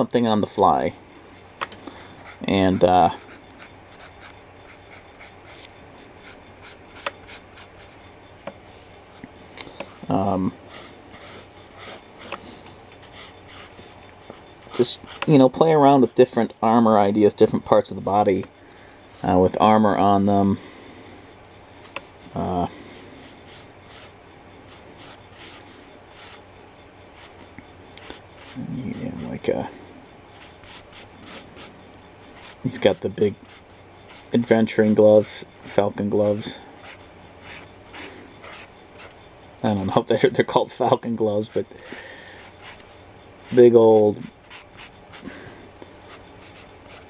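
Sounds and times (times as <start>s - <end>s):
pencil scratching on paper: 1.4s - 8.0s, 10.7s - 12.4s, 13.0s - 15.3s, 23.2s - 24.1s, 24.7s - 25.6s, 26.2s - 26.4s, 28.0s - 29.3s, 30.4s - 35.0s, 36.8s - 39.1s, 42.4s - 42.9s, 43.5s - 45.2s, 46.1s - 47.0s.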